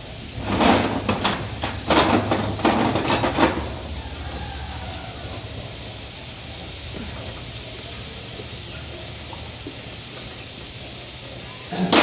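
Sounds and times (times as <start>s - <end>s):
metal tools clanking: 0.4s - 3.8s.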